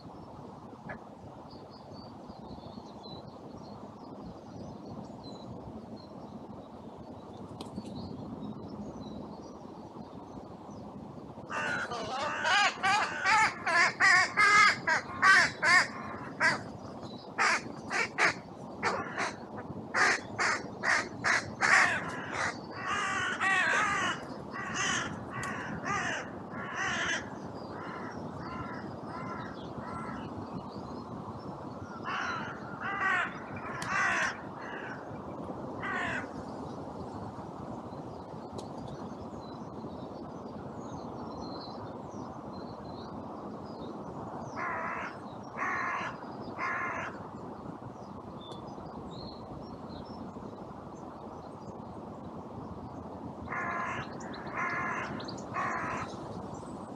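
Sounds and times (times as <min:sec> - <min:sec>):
wind noise: 0:00.0 - 0:56.9
crows cawing: 0:11.5 - 0:16.6, 0:17.4 - 0:19.4, 0:20.0 - 0:30.2, 0:32.0 - 0:35.1, 0:35.8 - 0:36.3, 0:44.6 - 0:47.2, 0:53.5 - 0:56.1.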